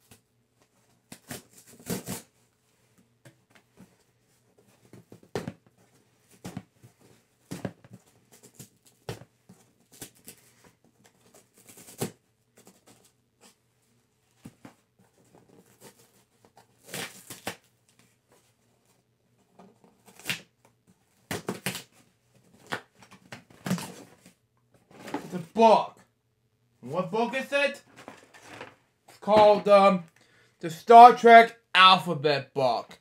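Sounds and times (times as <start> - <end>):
packaging rustling and tearing: 15.4 - 17.7.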